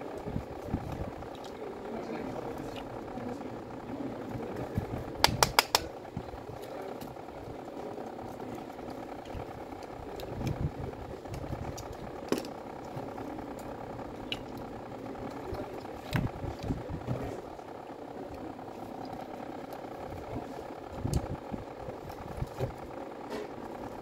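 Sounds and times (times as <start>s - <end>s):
steady background hum: 0.0s - 24.0s
sharp plastic clicks and taps: 5.2s - 6.0s.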